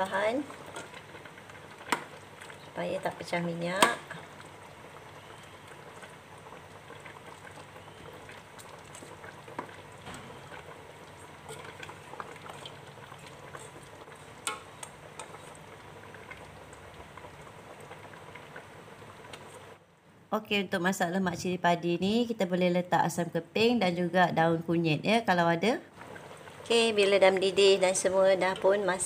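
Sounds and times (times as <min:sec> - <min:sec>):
curry bubbling in a pot: 0:00.0 - 0:19.9, 0:25.9 - 0:29.0.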